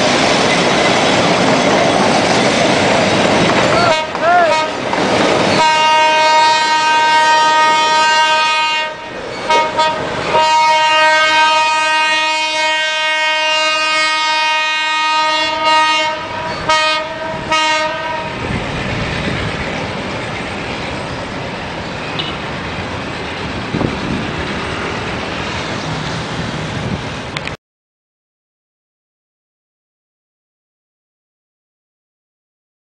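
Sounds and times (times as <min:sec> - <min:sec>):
train rumbling: 0:00.0 - 0:27.6
locomotive air horn blasts: 0:03.8 - 0:04.8, 0:05.6 - 0:18.4.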